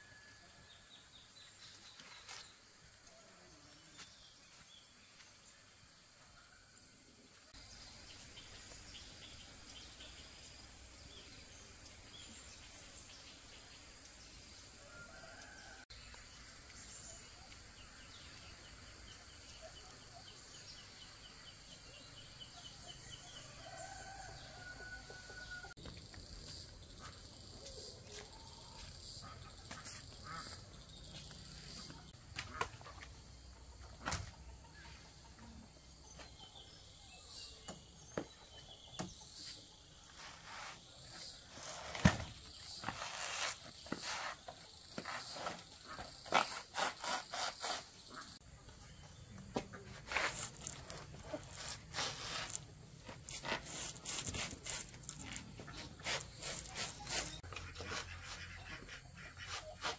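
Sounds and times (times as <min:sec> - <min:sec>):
rustling and scraping: 0:39.4 - 0:48.3, 0:49.6 - 0:59.9.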